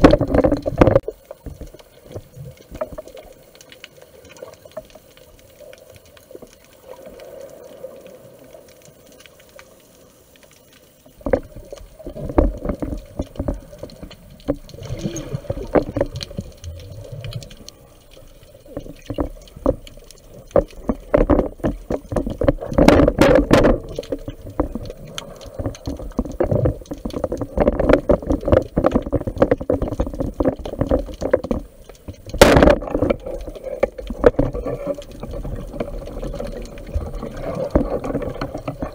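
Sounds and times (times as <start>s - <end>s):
underwater gurgling and sloshing: 0.0s - 38.9s.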